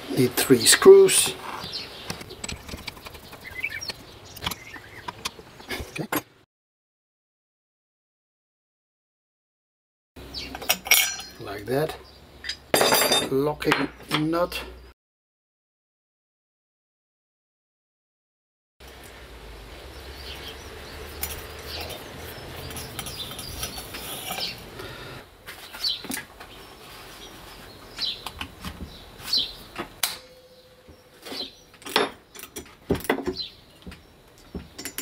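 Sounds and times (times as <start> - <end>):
faint bird chirps: 30.2 - 31.8.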